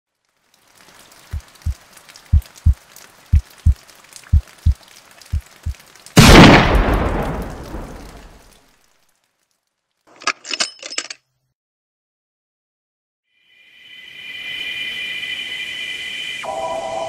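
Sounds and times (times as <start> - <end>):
heartbeat thumps: 1.3 - 5.8
gunshot ringing: 6.2 - 7.8.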